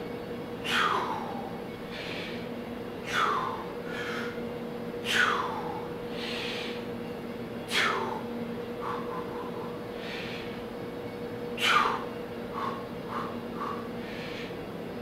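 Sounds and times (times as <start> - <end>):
faint steady hum: 0.0 - 15.0
man breathing hard: 0.6 - 4.4, 5.0 - 6.9, 7.7 - 10.7, 11.6 - 14.7.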